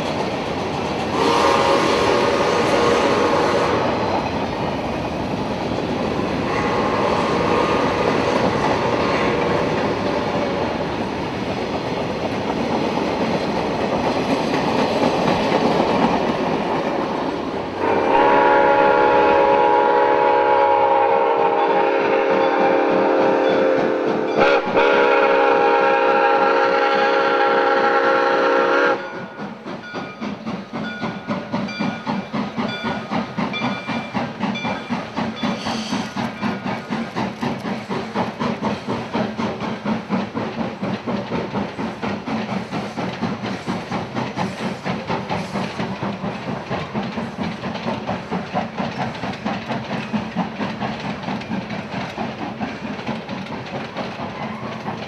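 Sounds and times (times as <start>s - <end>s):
wheels clacking over rail joints: 0.0s - 19.8s, 21.8s - 55.0s
train exhaust beat: 0.0s - 55.0s
steam locomotive whistle: 1.1s - 4.2s, 6.4s - 9.4s, 17.8s - 29.6s, 34.6s - 36.6s.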